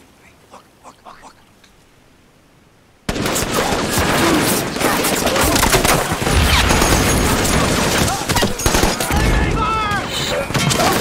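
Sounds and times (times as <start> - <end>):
dense gunfire volley: 3.1 - 11.0.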